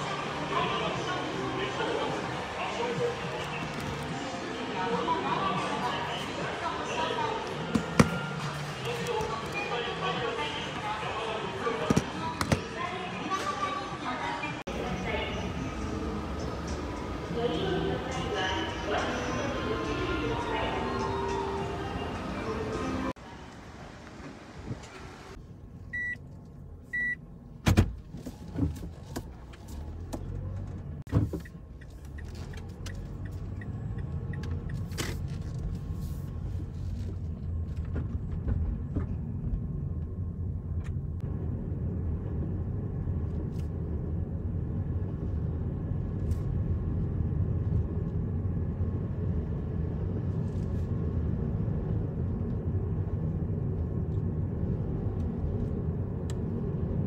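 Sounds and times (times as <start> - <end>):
car engine and tyre noise: 0.0 - 57.0
short electronic beeps: 26.0 - 26.2, 27.0 - 27.2.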